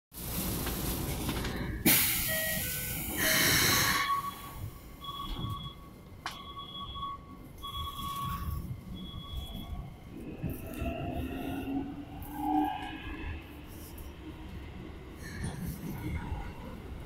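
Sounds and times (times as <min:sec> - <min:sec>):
train low rumble: 0:00.1 - 0:17.0
loud air hiss: 0:01.8 - 0:04.4.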